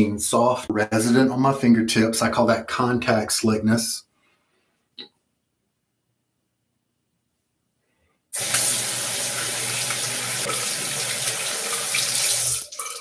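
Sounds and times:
tap running into sink: 8.4s - 13.0s.

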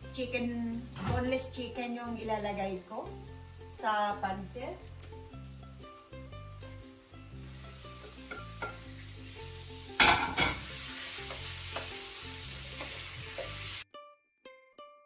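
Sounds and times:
chicken sizzling in hot oil: 2.8s - 13.9s.

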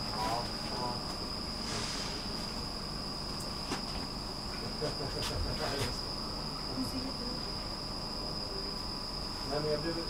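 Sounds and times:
high-pitched electrical whine: 0.0s - 10.0s.

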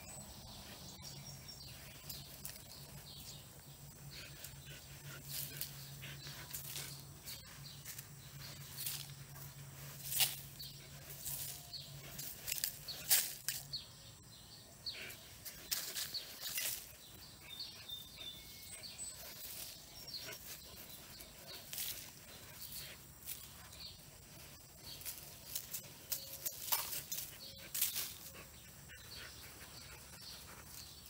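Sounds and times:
faint bird chirps: 0.0s - 31.0s
dog scratching dirt: 15.4s - 31.0s.

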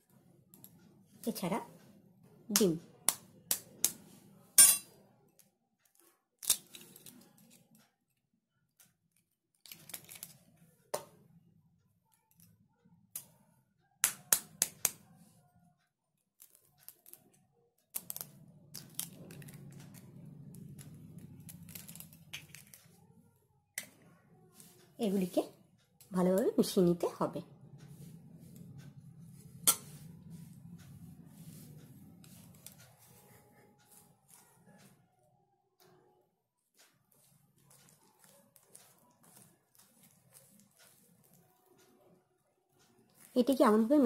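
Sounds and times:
low steady hum: 18.1s - 44.0s.

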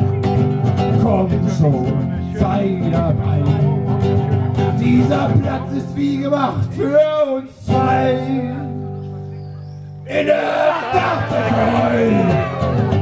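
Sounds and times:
strummed acoustic guitar: 0.0s - 13.0s
man singing: 0.9s - 3.8s, 4.7s - 9.0s, 10.1s - 12.7s.

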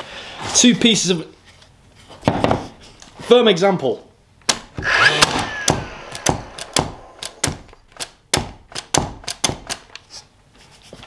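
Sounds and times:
nailer clicking: 4.5s - 10.0s
short falling whine: 4.8s - 7.4s
loud knock: 4.8s - 7.7s.

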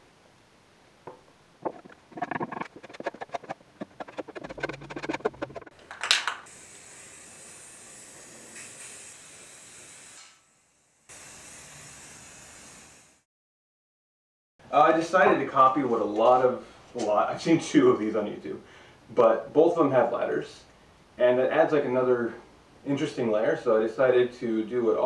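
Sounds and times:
rapid rattling clicks: 1.6s - 6.1s.

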